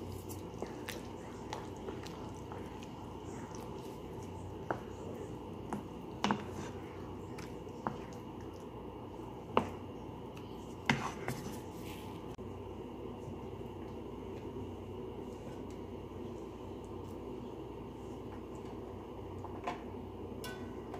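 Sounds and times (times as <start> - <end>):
spoon stirring thick sauce: 0.0 - 11.7
steady background hum: 0.0 - 20.9.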